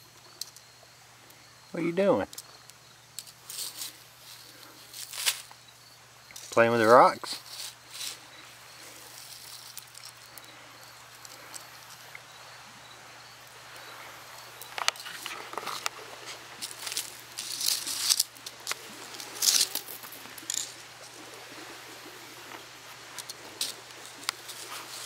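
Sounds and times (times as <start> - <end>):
gravel scraped with plastic utensil: 14.6 - 20.8.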